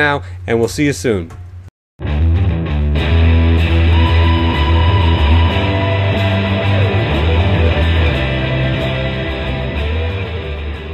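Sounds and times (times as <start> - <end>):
rock music with guitar: 2.0 - 10.9
steady bass notes: 2.0 - 10.9
sliding guitar notes: 2.1 - 10.9.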